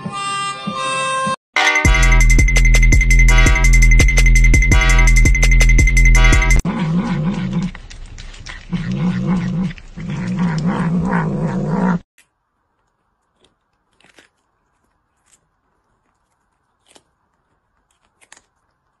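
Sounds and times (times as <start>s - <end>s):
cat growling: 6.6s - 12.1s.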